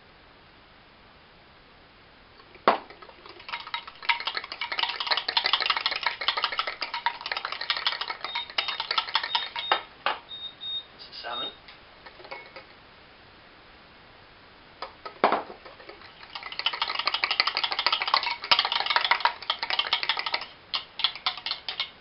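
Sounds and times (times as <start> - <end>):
whisk clinking against bowl: 2.9 - 9.8, 12.0 - 12.7, 15.6 - 22.0.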